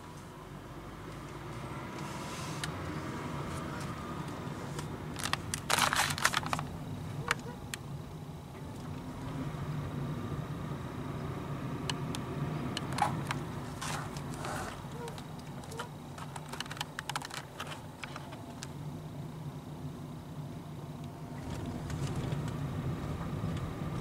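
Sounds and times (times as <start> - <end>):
car engine and tyres hum: 0.0 - 24.0
sharp rattling clicks: 11.9 - 18.7.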